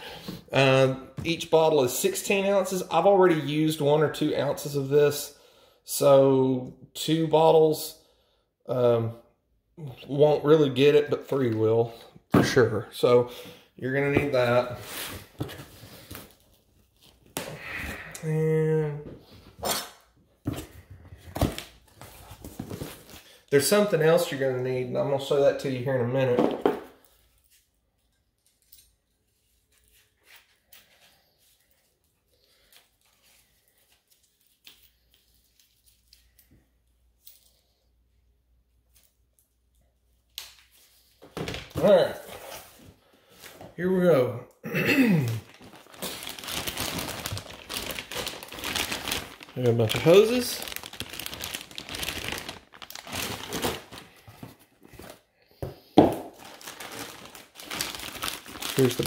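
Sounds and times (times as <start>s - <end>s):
plastic bags crinkling: 45.2s - 55.2s, 56.1s - 59.0s
rustling packaging in box: 45.4s - 55.2s, 56.3s - 59.0s.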